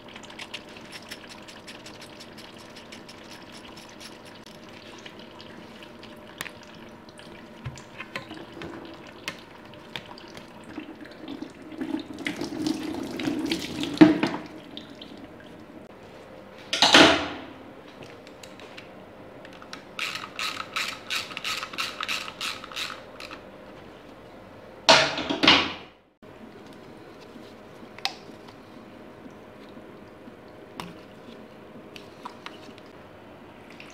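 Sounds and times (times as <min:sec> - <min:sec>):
fluid draining into bucket: 0:00.0 - 0:15.2.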